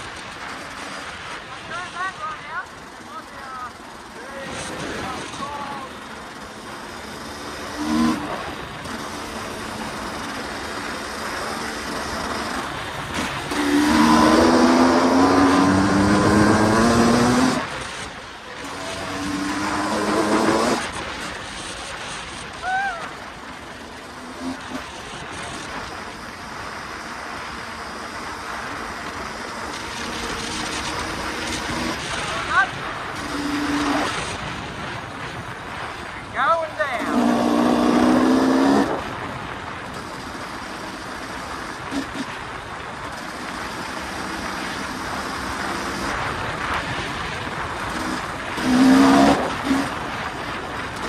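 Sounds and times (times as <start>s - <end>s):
dirt bike engine running: 0.0s - 51.0s
riding noise rush: 0.0s - 51.0s
wind noise: 28.4s - 43.4s, 44.2s - 51.0s.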